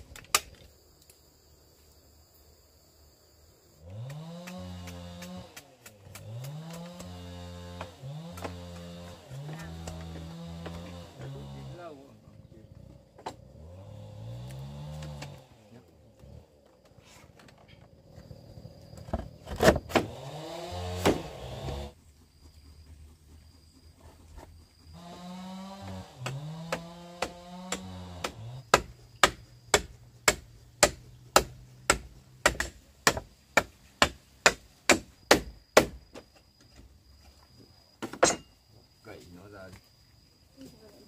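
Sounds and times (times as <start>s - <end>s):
tool striking wood: 4.0s - 11.6s, 19.1s - 21.9s, 25.0s - 36.4s, 38.0s - 38.5s.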